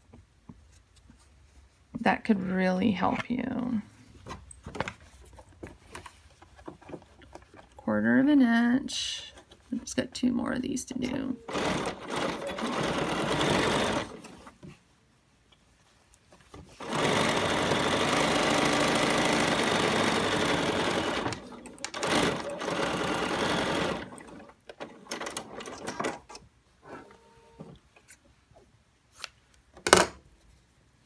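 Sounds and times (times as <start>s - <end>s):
sewing machine stitching: 11.4s - 14.4s, 16.8s - 26.4s.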